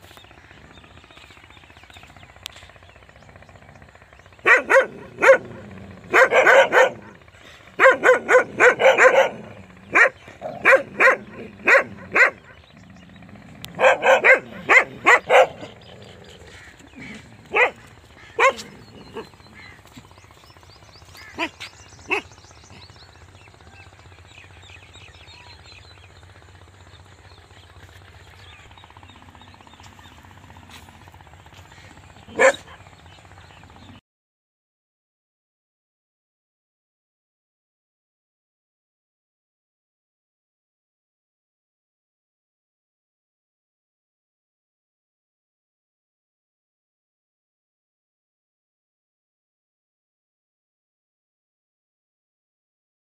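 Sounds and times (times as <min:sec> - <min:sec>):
dog barking: 0:04.4 - 0:07.2, 0:07.8 - 0:12.5, 0:13.7 - 0:15.8, 0:17.5 - 0:17.8, 0:18.4 - 0:19.3, 0:32.3 - 0:32.8.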